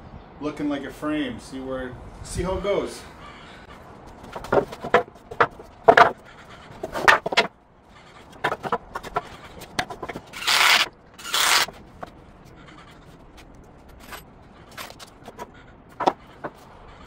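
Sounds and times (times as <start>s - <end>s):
boards scraping on concrete: 4.1s - 17.0s
wooden boards knocking: 4.2s - 7.5s, 8.3s - 10.3s, 15.2s - 16.6s.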